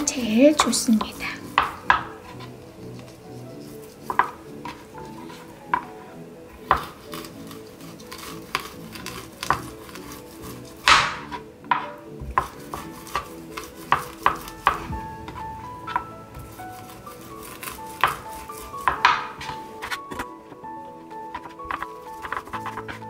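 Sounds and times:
soft background music: 0.0 - 23.0
rolling pin knocking on cutting board: 1.1 - 2.3, 4.1 - 4.8, 10.8 - 19.7.

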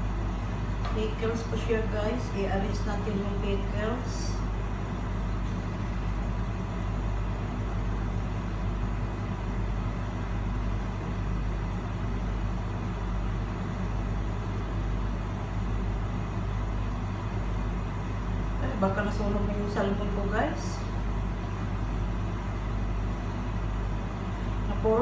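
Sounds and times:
fan humming and whooshing: 0.0 - 25.0.

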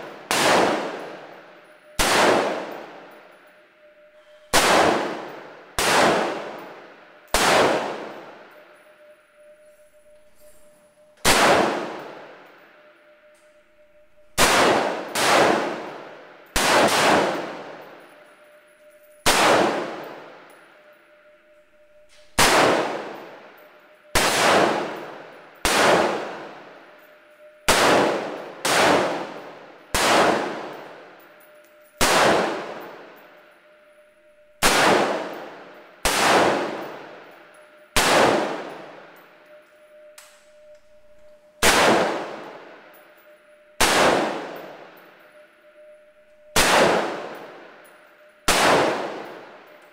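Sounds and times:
rifle shots echoing: 0.0 - 3.2, 4.5 - 8.7, 11.2 - 12.4, 14.4 - 18.0, 19.2 - 21.2, 22.4 - 33.2, 34.6 - 40.7, 41.6 - 45.9, 46.5 - 49.8.

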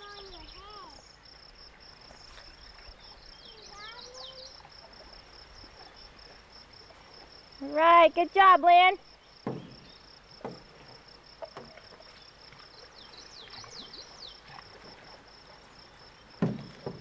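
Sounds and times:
insects buzzing: 0.0 - 17.0
paddle splashing water: 0.0 - 17.0.

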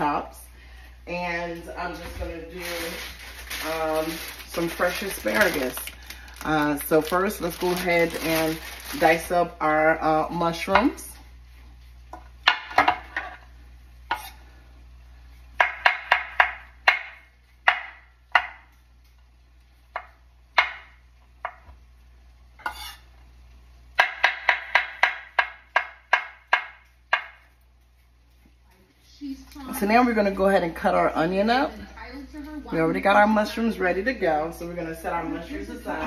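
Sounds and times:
knife chopping on wooden board: 24.0 - 27.5.

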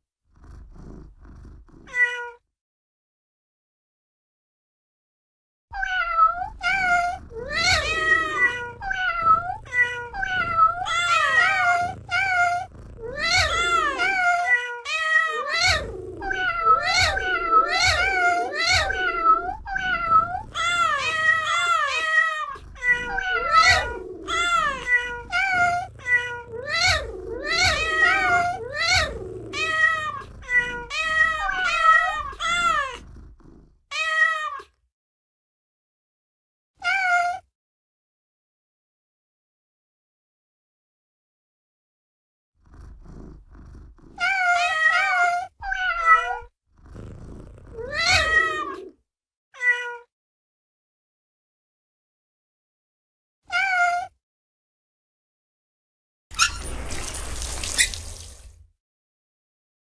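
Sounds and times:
cat meowing: 1.9 - 2.4, 5.7 - 33.0, 36.8 - 37.4, 44.2 - 46.5, 47.7 - 49.0, 49.6 - 50.1, 53.5 - 54.1.

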